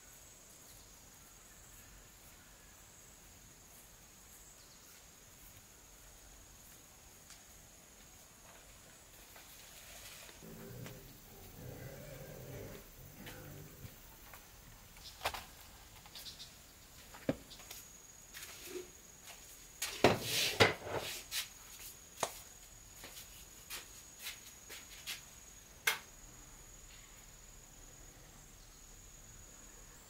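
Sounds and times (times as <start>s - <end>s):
high insect buzz: 3.7s - 30.0s
footsteps: 16.9s - 25.3s.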